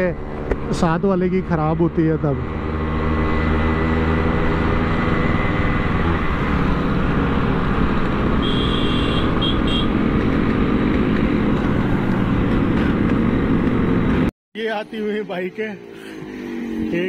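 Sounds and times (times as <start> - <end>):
road and wind noise: 0.0 - 17.0.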